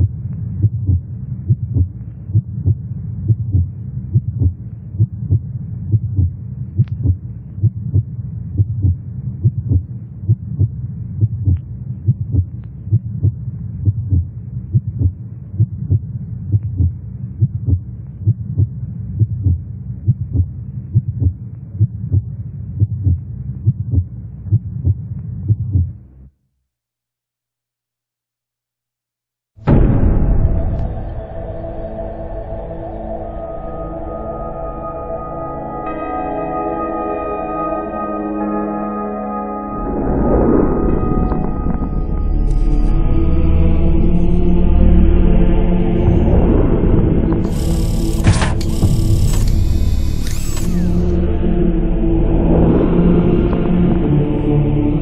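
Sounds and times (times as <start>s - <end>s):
heartbeat thumping: 0.0s - 26.0s, 46.0s - 50.7s
low hum: 0.0s - 26.2s, 29.7s - 55.0s.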